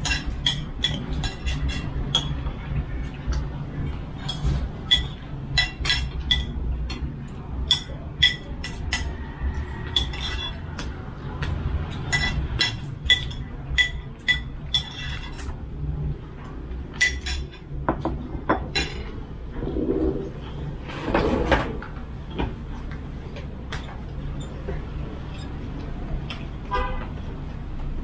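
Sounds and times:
spoons clinking against bowls: 0.0 - 2.5, 4.2 - 15.6, 16.9 - 19.1.

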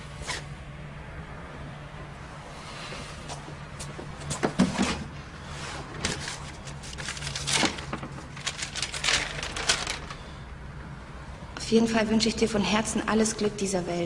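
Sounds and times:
objects rummaged on a shelf: 3.3 - 10.2.

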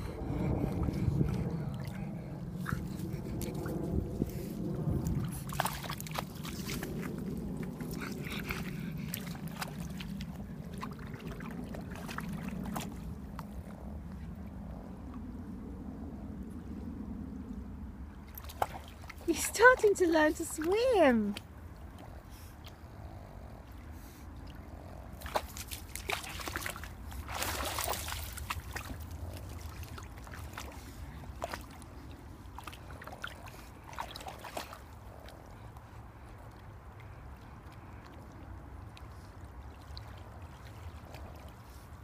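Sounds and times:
low rumble: 0.0 - 19.3
dog splashing in water: 5.0 - 13.2, 18.3 - 21.2, 25.1 - 31.9, 32.5 - 35.1.

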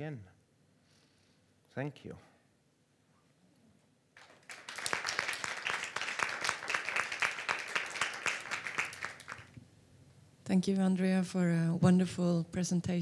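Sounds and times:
audience applauding: 4.2 - 9.6.

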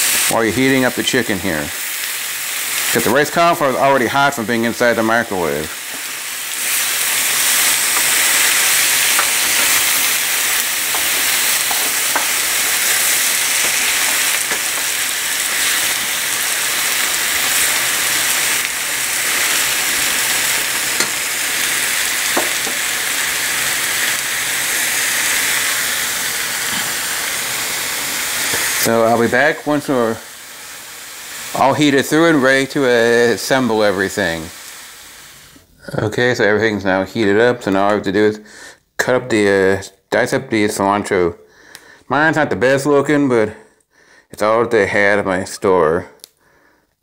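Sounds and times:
chicken sizzling in a frying pan: 0.0 - 35.6.

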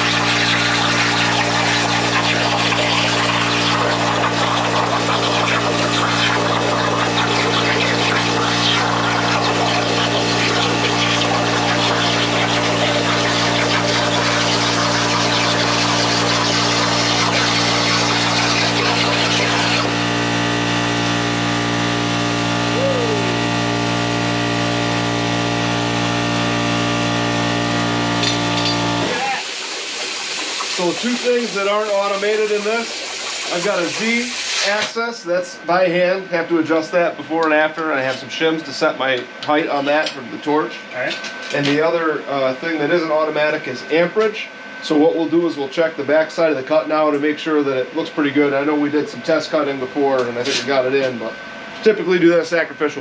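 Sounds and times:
plasma cutter hissing: 0.0 - 20.0, 28.2 - 35.0
machine humming: 0.0 - 39.4.

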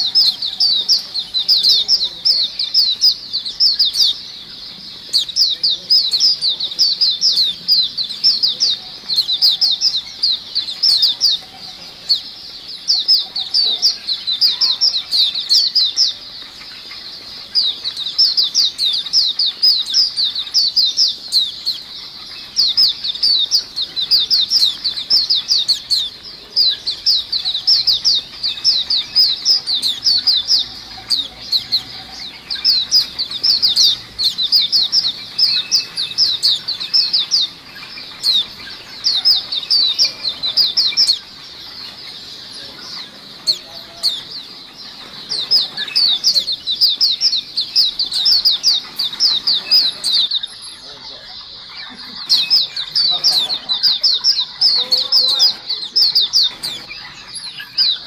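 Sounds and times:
flock of birds chirping: 0.0 - 58.0.

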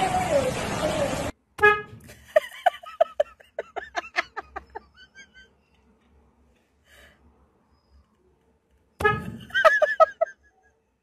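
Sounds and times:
car horn rapid toots: 1.6 - 2.0, 9.0 - 9.4.

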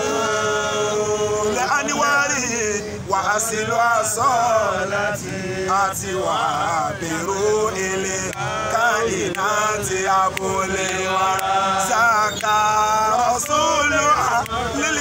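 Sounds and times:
men chanting devotional song: 0.0 - 15.0.

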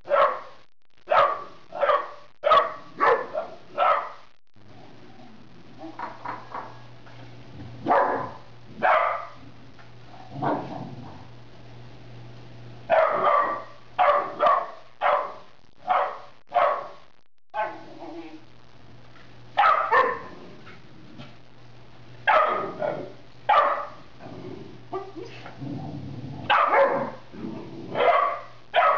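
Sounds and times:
puppy barking: 0.1 - 0.5, 1.1 - 4.2, 7.8 - 9.4, 12.9 - 17.0, 17.6 - 17.8, 19.6 - 20.3, 22.3 - 24.0, 26.5 - 27.2, 28.0 - 28.9
dog growling: 10.2 - 11.3, 20.1 - 21.4, 24.2 - 28.1.

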